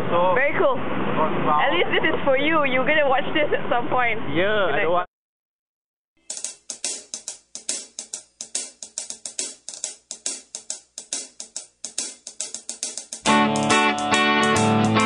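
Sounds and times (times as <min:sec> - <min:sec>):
fast drum and cymbal beat: 0:06.2 - 0:15.0.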